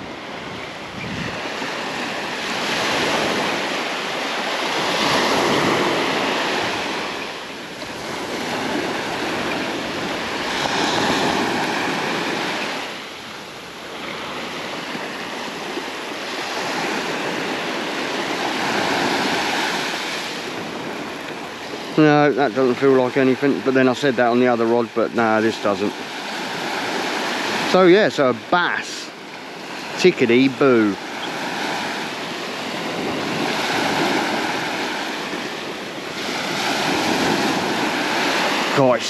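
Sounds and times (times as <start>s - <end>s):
surf breaking on beach: 0.0s - 39.0s.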